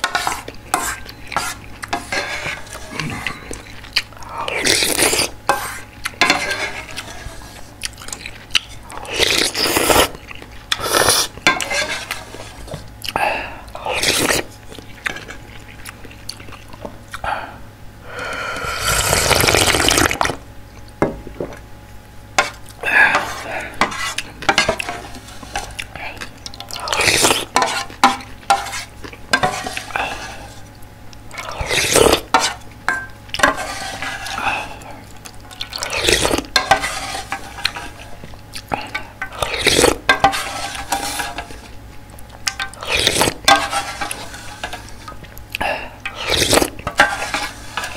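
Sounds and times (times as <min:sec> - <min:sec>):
slurping broth from a spoon: 0:04.6 - 0:07.6, 0:09.1 - 0:12.5, 0:18.5 - 0:20.4, 0:26.7 - 0:27.8, 0:31.4 - 0:32.3, 0:35.6 - 0:38.1, 0:39.3 - 0:41.6, 0:42.8 - 0:44.9, 0:46.1 - 0:47.9.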